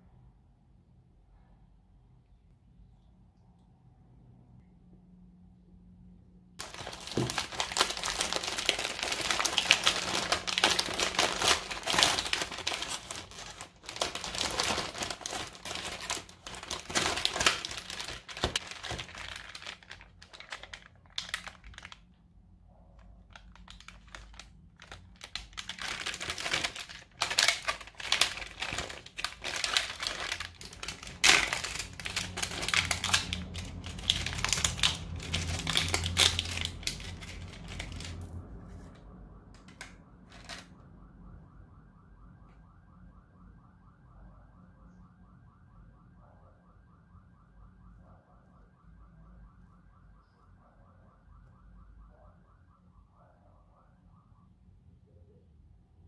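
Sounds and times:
plastic packaging crinkling: 6.6s - 22.2s, 23.0s - 38.3s, 39.6s - 40.7s.

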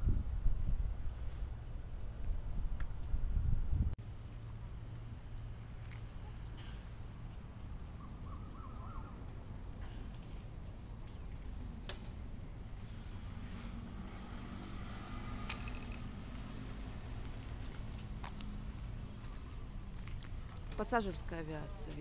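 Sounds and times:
faint bird chirps: 7.8s - 9.6s.

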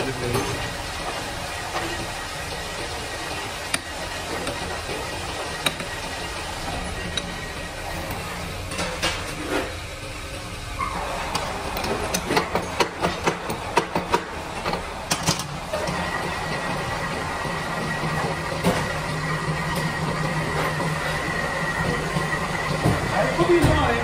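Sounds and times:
lathe running with high whine: 0.0s - 24.0s.

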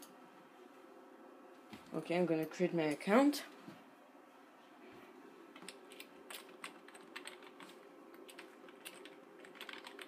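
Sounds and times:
faint steady hum: 0.0s - 10.0s
keyboard typing: 5.6s - 10.0s.

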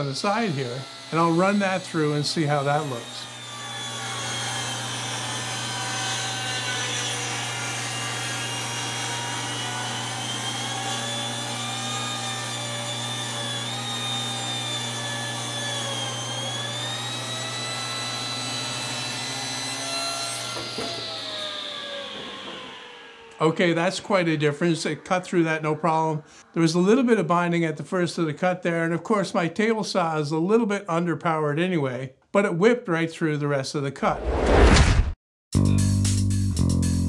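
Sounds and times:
saw motor humming: 0.0s - 27.3s
table saw ripping a board: 0.1s - 24.6s.

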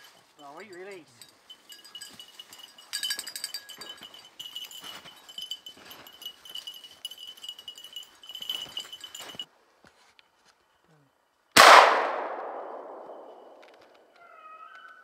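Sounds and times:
small collar bells jingling: 0.0s - 9.5s.

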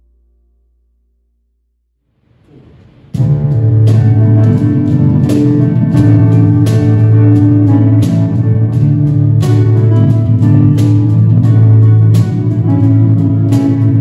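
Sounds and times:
cajon beats: 3.2s - 14.0s
strummed guitar: 3.2s - 14.0s
sustained keyboard notes: 3.2s - 14.0s.

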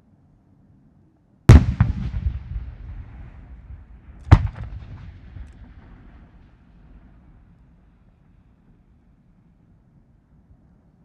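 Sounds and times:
firework bang echoing: 1.5s - 7.2s.

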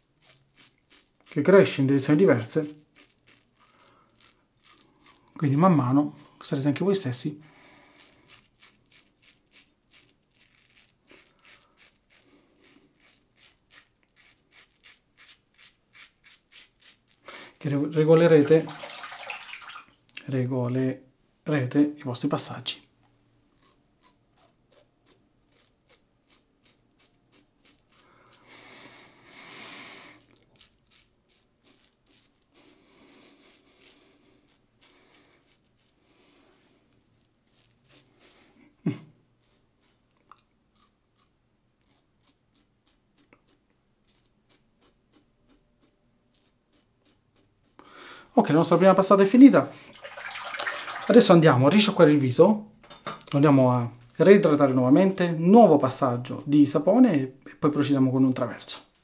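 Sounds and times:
razor cutting stubble: 7.8s - 17.2s, 23.5s - 32.5s, 40.7s - 47.8s.

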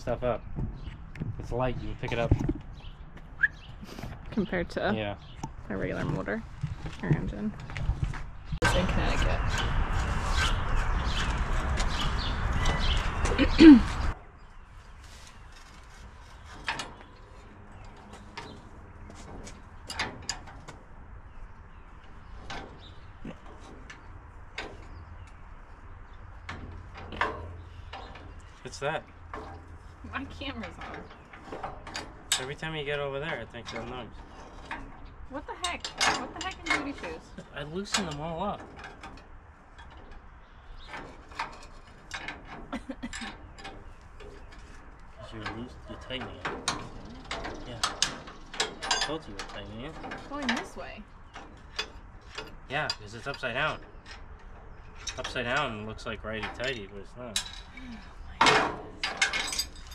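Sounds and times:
low steady rumble: 4.2s - 14.1s.

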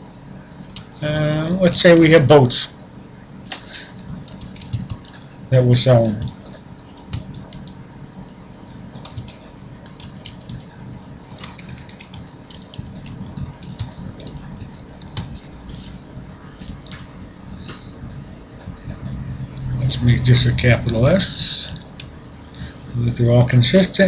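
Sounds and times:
keyboard typing clicks: 3.9s - 5.4s, 6.0s - 21.0s.

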